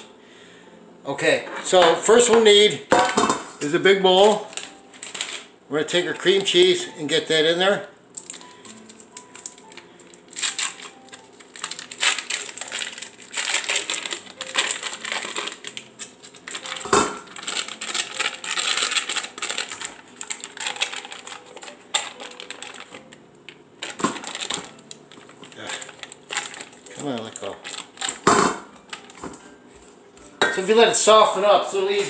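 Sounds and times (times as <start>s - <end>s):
foil wrapper crinkling: 4.0s - 29.9s.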